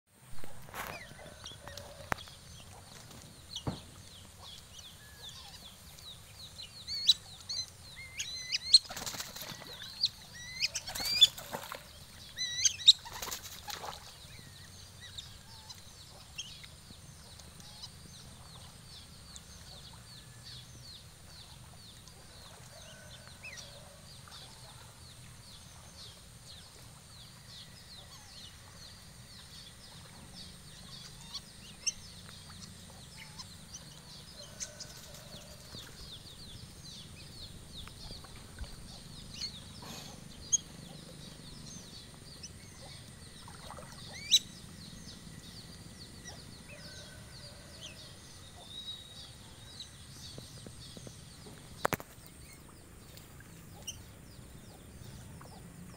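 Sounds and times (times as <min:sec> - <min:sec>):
wings flapping: 0:08.8 - 0:09.9, 0:13.0 - 0:14.1.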